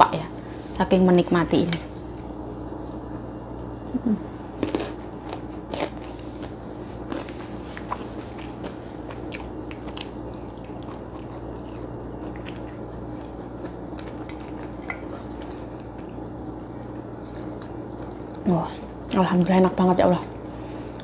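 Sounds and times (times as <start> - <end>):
low steady hum: 0.0 - 21.0
person chewing food: 4.5 - 18.5
food crunching: 4.5 - 19.2.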